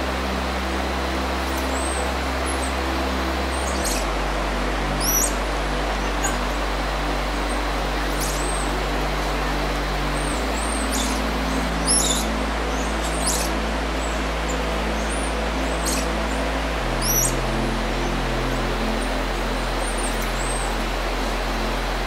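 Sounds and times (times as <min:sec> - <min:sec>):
steady background hum: 0:00.0 - 0:22.0
monkeys chirping and squeaking: 0:11.9 - 0:12.2.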